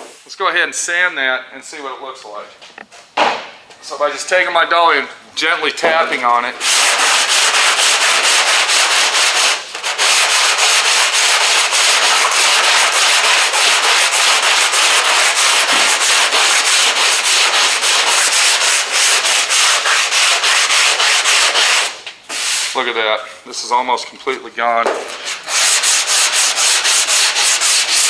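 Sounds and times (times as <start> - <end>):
sanding block scraping steel: 6.6 - 22.8, 25.2 - 28.0.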